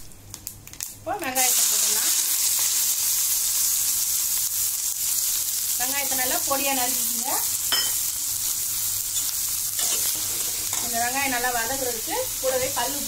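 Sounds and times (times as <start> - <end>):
onions sizzling in oil: 0.6 - 13.0.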